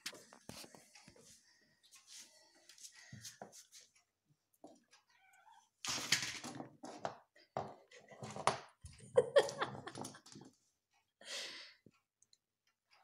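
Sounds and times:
cat meowing: 5.1 - 5.7.

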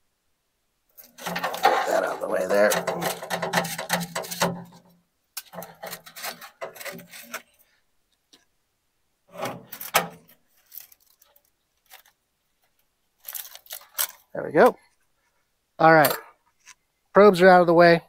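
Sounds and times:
grinding scrape: 1.0 - 7.6
metal scraping on grate: 1.0 - 7.6, 9.3 - 10.8.

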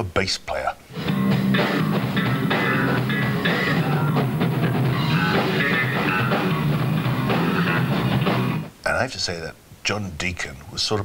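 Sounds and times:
guitar: 0.9 - 8.8
drum kit: 1.0 - 8.7.

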